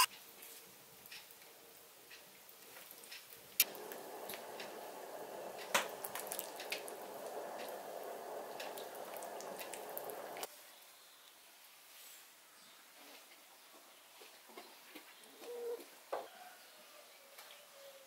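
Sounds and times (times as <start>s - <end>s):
soup sloshing in a pot: 3.6s - 10.5s.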